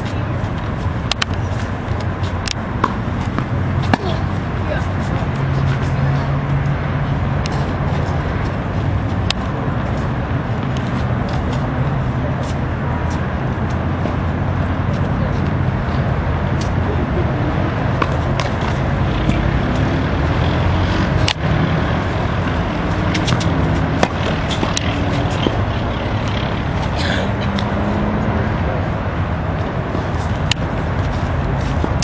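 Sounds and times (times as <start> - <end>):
tennis balls struck by racquets: 0.0 - 6.3, 17.6 - 32.0.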